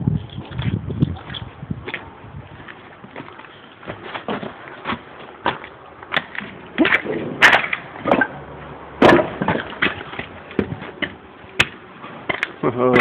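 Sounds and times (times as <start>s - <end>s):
footsteps on stone stairs: 0.4s - 8.3s.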